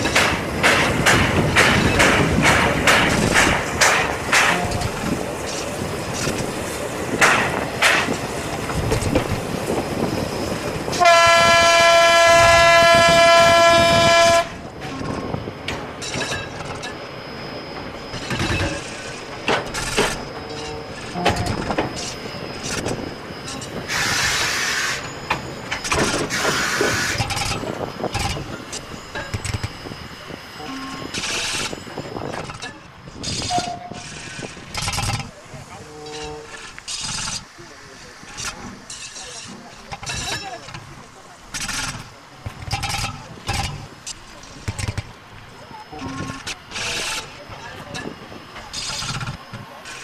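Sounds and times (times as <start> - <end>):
train carriages rattling: 0.0 - 50.0
locomotive whistle blast: 10.9 - 15.1, 29.6 - 31.8.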